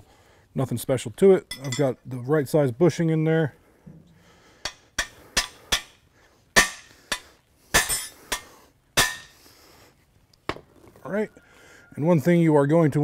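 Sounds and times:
hammer striking metal bar: 4.6s - 6.0s, 6.6s - 9.3s.

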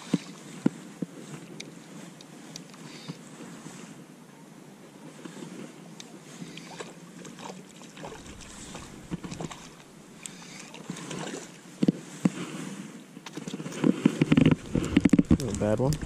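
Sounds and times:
fish splashing at water surface: 6.6s - 11.6s
wind on microphone: 8.0s - 10.5s, 13.7s - 16.0s.

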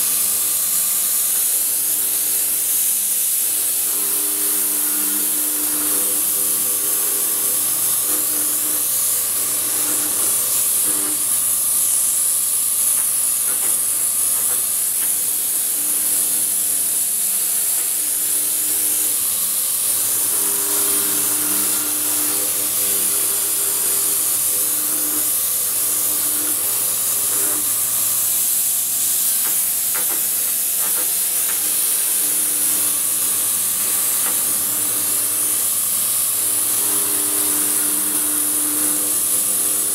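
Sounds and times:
milling machine high hiss: 0.0s - 39.9s
humming motor tones: 17.8s - 27.9s.

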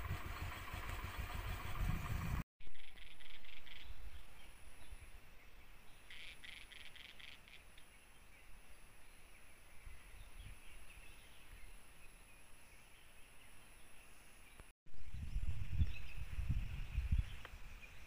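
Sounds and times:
low rumble: 0.0s - 3.4s.

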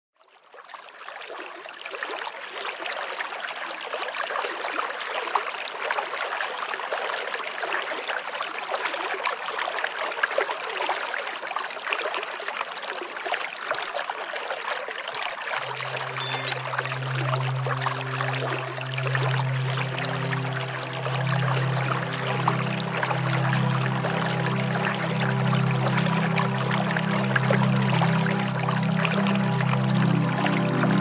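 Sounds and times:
sharp clicks: 16.2s - 16.6s.

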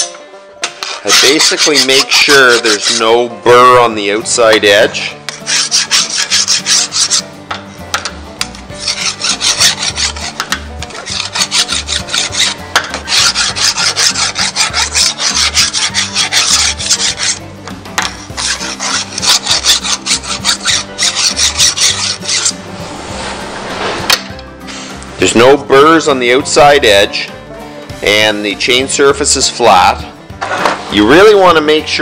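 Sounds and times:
file scraping steel: 0.7s - 3.4s, 4.6s - 7.4s, 8.0s - 25.0s.

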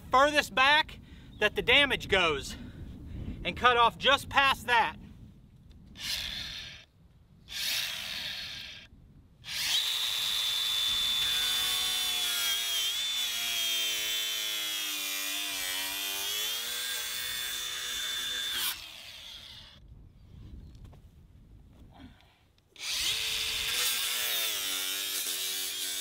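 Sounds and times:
angle grinder cutting plastic pipe: 6.0s - 6.9s, 7.5s - 19.8s, 22.8s - 26.0s.

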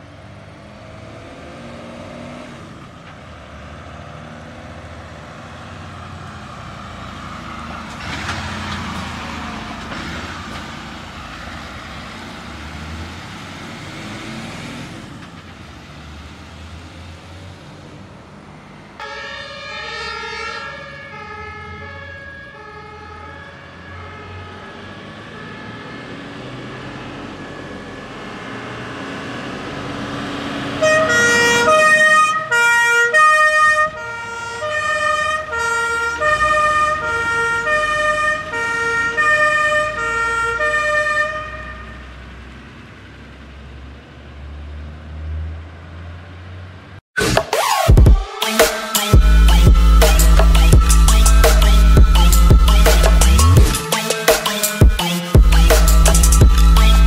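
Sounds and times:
diesel truck engine: 0.0s - 47.0s, 49.2s - 54.1s, 55.0s - 57.0s
two-tone fire engine sirens: 19.0s - 42.3s, 48.2s - 57.0s.

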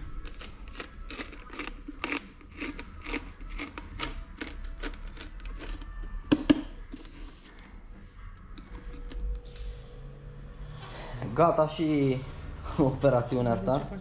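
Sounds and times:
foil tape crinkling and scraping: 0.0s - 6.1s.

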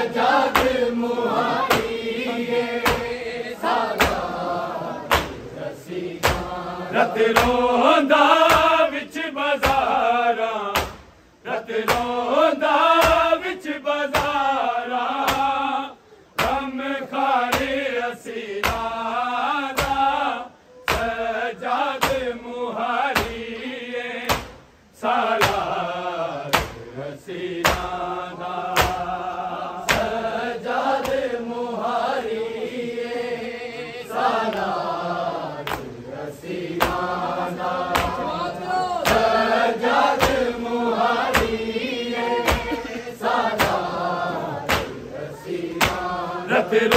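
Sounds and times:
men chanting: 0.0s - 46.9s
hands striking chests: 37.9s - 38.2s.

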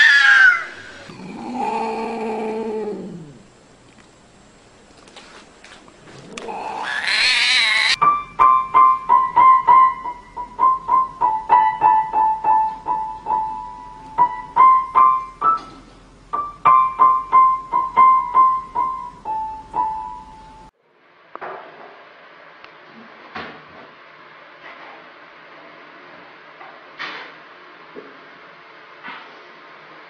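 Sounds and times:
cat yowling: 0.0s - 3.4s, 6.3s - 8.0s
piano notes struck singly: 8.0s - 20.7s.

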